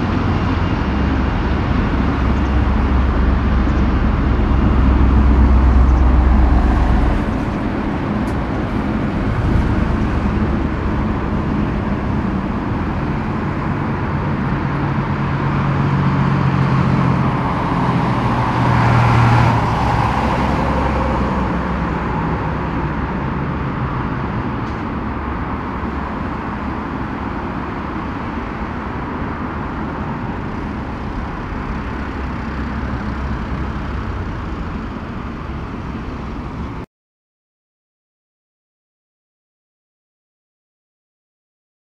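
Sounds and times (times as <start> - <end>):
jet engines running: 0.0 - 36.8.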